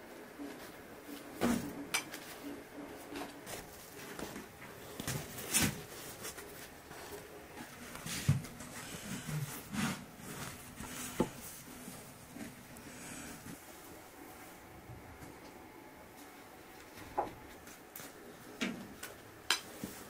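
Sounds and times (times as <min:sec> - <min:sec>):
rustling of dishes and food: 0:00.0 - 0:14.6.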